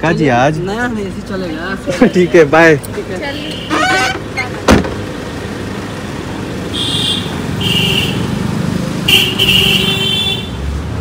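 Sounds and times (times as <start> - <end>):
engine rumbling: 0.0 - 11.0
street traffic: 0.0 - 11.0
vehicle horns honking: 3.3 - 4.2, 6.7 - 8.4, 9.0 - 10.6.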